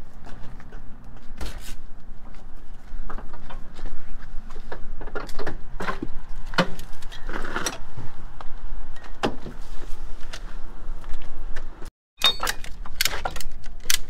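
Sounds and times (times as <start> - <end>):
clunks and rattles: 3.0 - 7.9.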